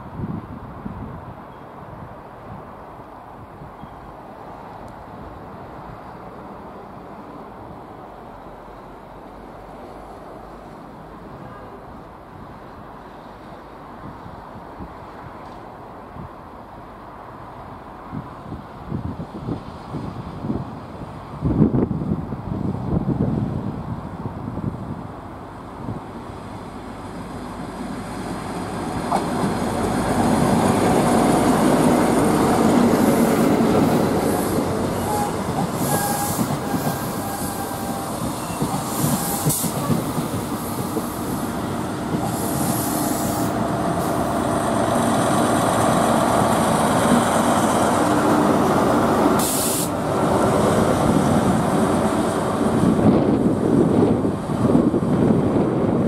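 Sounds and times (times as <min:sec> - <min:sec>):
diesel train rumbling past: 0:00.0 - 0:56.0
wheel squeal: 0:35.0 - 0:39.8.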